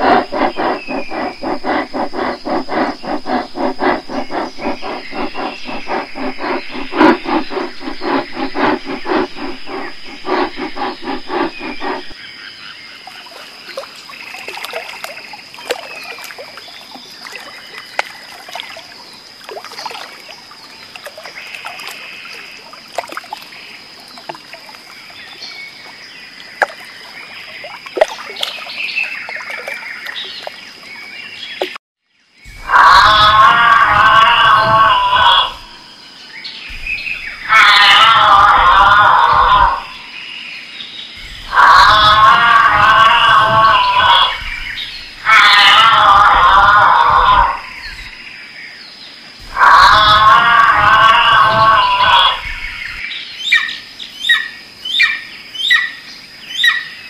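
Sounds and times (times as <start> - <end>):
animal calling in pulses: 0.0 - 12.1, 32.6 - 35.8, 36.7 - 40.0, 41.4 - 48.1, 49.5 - 52.8.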